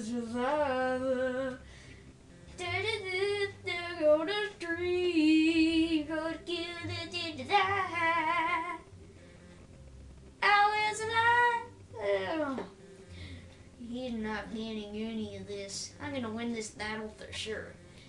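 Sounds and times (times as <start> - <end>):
boy singing: 0.0 - 1.6, 2.6 - 8.8, 10.4 - 12.7.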